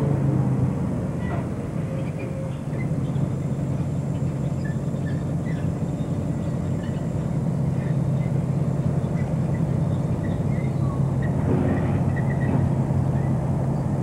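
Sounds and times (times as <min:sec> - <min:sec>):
locomotive diesel engine drone: 0:00.0 - 0:14.0.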